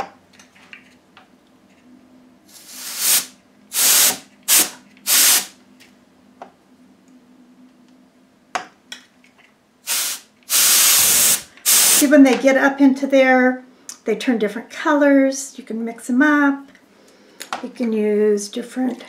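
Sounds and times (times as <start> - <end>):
compressed air can hissing: 2.5 - 5.5, 9.8 - 12.1.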